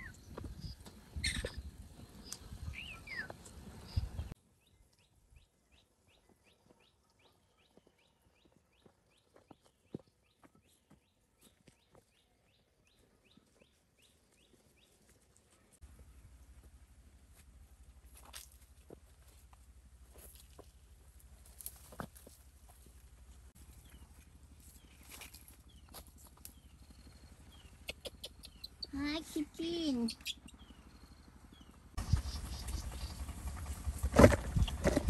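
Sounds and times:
footsteps on dirt path: 0:06.2 - 0:26.8
bird call: 0:27.6 - 0:29.0.

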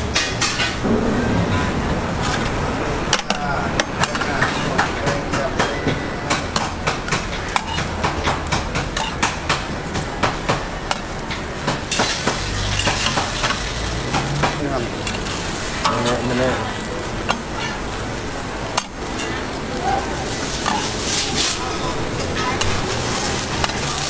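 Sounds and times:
food sizzling on griddle: 0:02.0 - 0:24.0
spatula clicking on griddle: 0:06.3 - 0:16.4, 0:17.2 - 0:24.0.

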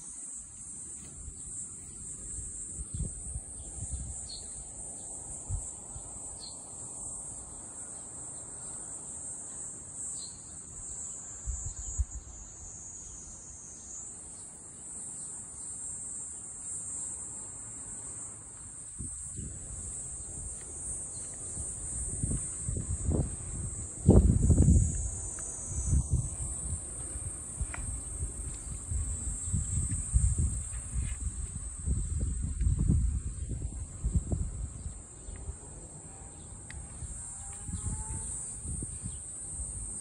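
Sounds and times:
cicadas chorus: 0:00.0 - 0:40.0
wind and handling rumbles: 0:19.0 - 0:35.5.

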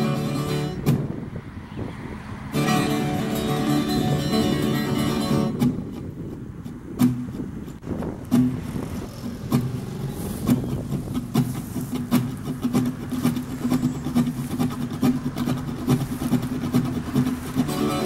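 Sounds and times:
low engine hum: 0:00.0 - 0:18.0
short thumps: 0:00.7 - 0:01.3, 0:05.5 - 0:17.7.

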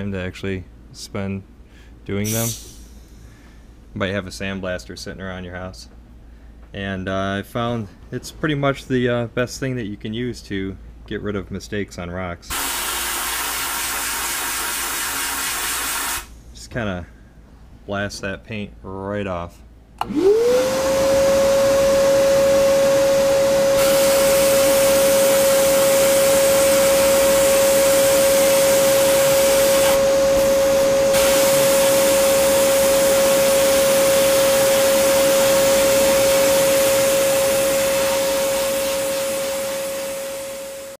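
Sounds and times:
sandblast gun hissing: 0:02.2 - 0:03.3, 0:12.5 - 0:16.4, 0:22.1 - 0:41.0
steady motor whine: 0:20.0 - 0:41.0.

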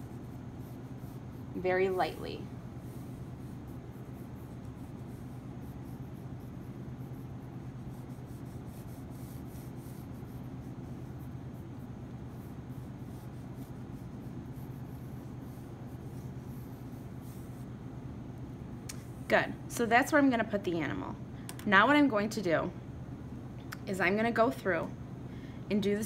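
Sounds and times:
pencil sketching on paper: 0:00.0 - 0:17.7
steady low hum: 0:00.0 - 0:26.0.

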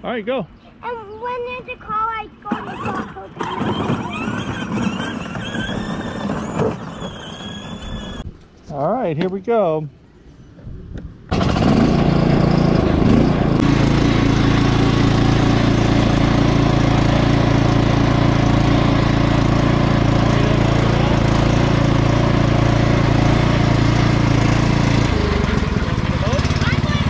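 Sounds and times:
riding lawn mower engine running: 0:01.9 - 0:08.2, 0:11.3 - 0:27.0.

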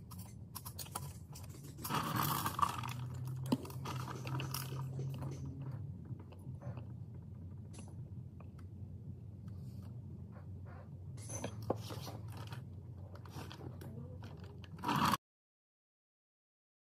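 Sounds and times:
steady low hum: 0:00.0 - 0:15.2
metal clatter: 0:00.1 - 0:05.8.

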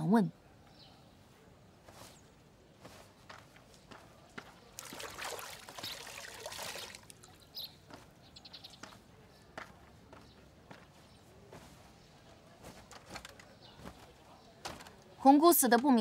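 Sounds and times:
water splashing and trickling: 0:04.6 - 0:07.6
wet cloth wrung out: 0:04.8 - 0:07.4.

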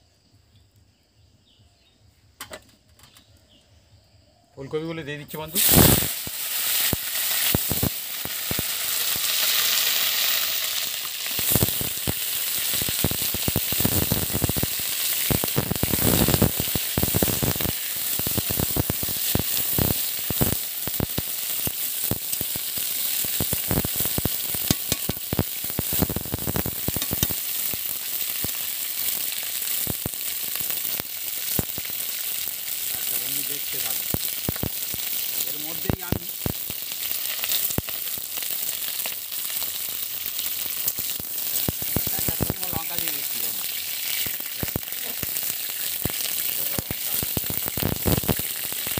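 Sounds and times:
vegetables sizzling in oil: 0:05.3 - 0:48.9.

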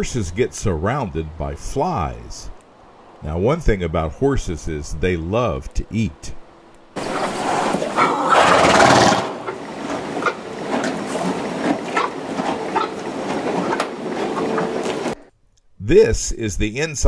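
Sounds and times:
hay rustling: 0:07.0 - 0:15.2
horses chewing hay: 0:07.0 - 0:15.2.

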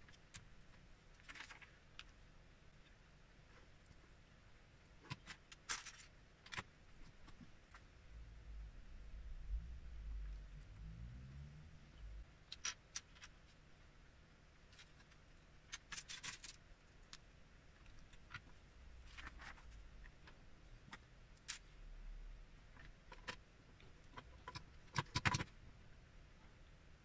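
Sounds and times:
plastic bricks clicking and clattering: 0:05.0 - 0:06.7, 0:14.7 - 0:17.2, 0:24.0 - 0:25.5.

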